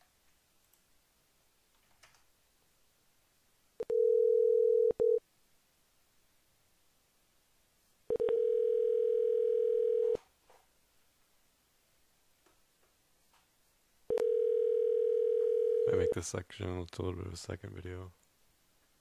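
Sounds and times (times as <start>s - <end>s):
telephone line tone: 3.8s - 5.2s, 8.1s - 10.2s, 14.1s - 16.2s.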